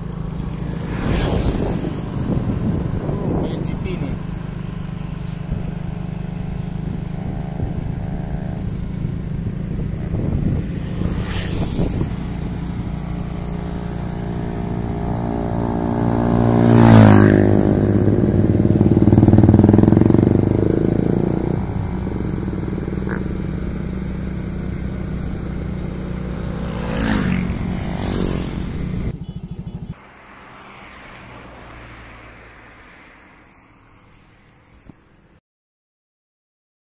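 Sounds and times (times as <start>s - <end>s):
loud engine swell: 0.0s - 29.2s
vehicle passing by: 0.0s - 34.4s
vehicle engine drone: 0.0s - 35.3s
road noise: 0.0s - 35.4s.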